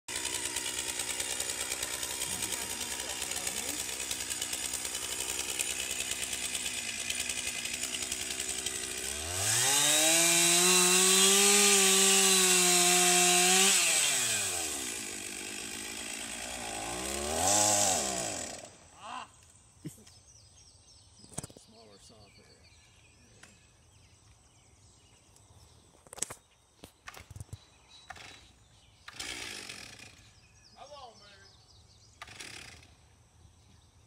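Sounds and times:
chainsaw idling and revving: 0.1s - 19.0s, 28.1s - 30.5s, 32.2s - 33.1s.

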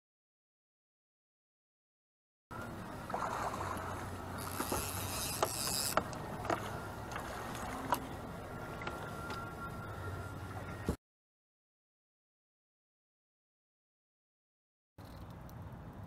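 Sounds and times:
water splashing: 2.6s - 9.7s.

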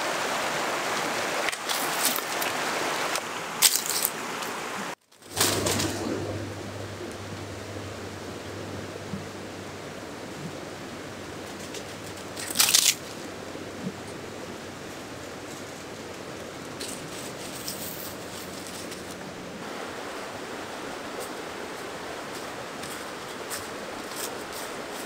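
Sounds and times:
faint leaves rustling: 0.0s - 25.0s
fast river rushing: 0.0s - 25.0s
dry leaves crunching: 1.6s - 2.6s, 3.6s - 4.2s, 11.4s - 13.3s, 15.2s - 19.5s.

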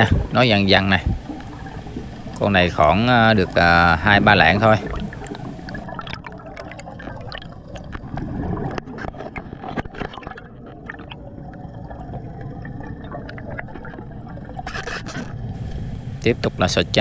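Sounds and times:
underwater bubbles gurgling: 0.0s - 17.0s.

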